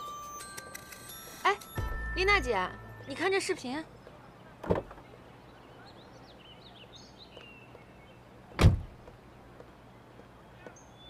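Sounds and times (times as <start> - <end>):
car door shutting thump: 8.6 - 9.0.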